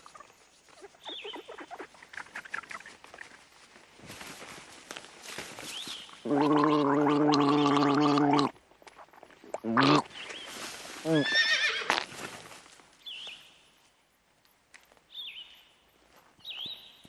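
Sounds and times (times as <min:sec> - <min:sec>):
man gargling water: 0:06.2 - 0:08.6, 0:09.5 - 0:10.1.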